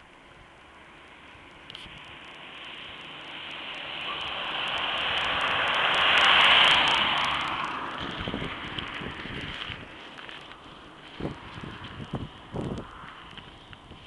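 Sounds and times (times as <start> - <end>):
car tyres hissing on wet road: 0.5 - 14.0.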